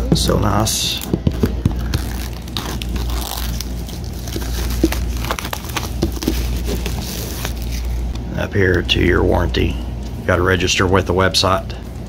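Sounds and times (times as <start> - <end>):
packaging scraping and crinkling: 1.5 - 8.2.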